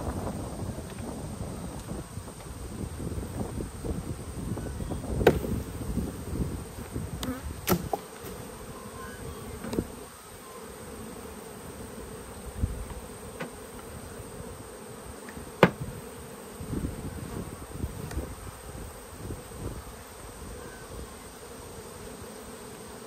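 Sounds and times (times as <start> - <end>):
bees buzzing: 0.0 - 23.0
wooden hive boxes knocking: 5.1 - 5.8, 7.1 - 8.4, 12.8 - 13.9, 15.2 - 16.0.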